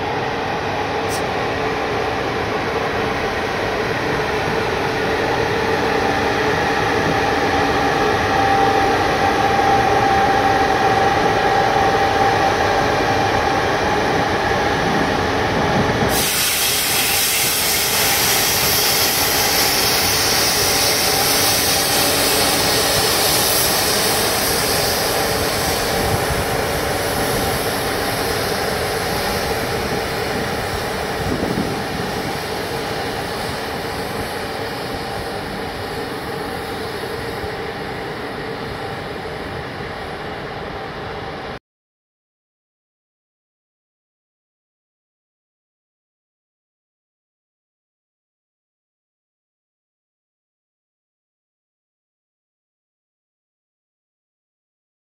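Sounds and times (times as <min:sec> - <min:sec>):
locomotive hum and whine: 0:00.0 - 0:41.6
loud high hiss: 0:16.1 - 0:38.3.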